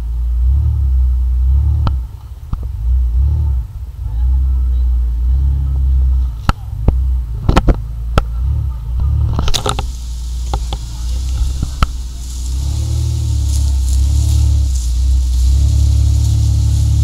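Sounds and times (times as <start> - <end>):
low engine rumble: 0.0 - 17.0
sharp clicks and knocks: 6.4 - 8.4, 9.0 - 12.0.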